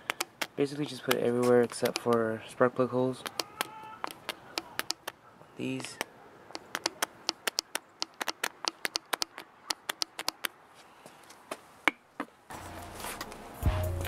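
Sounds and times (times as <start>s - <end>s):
oil pump squirter clicks: 0.0s - 2.3s, 3.2s - 5.2s, 5.8s - 10.5s.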